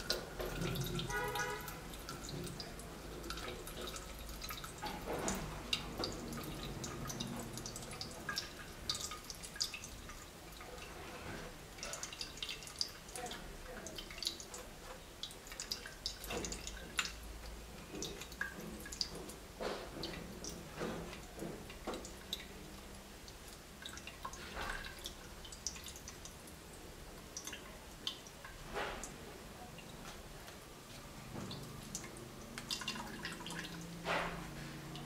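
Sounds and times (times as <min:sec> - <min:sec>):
juice dripping into plastic cup: 0:00.0 - 0:11.0, 0:31.5 - 0:34.0.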